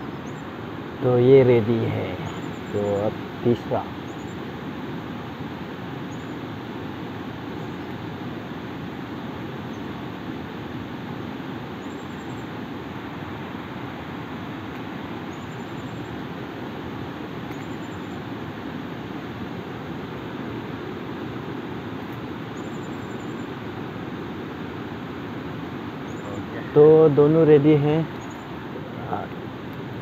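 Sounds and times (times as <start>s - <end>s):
river rushing: 0.0s - 30.0s
faint high chirps: 17.5s - 18.3s, 22.5s - 23.6s.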